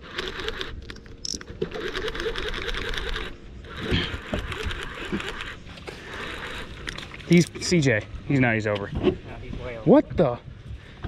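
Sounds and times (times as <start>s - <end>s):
fishing reel gears whirring: 0.0s - 7.4s.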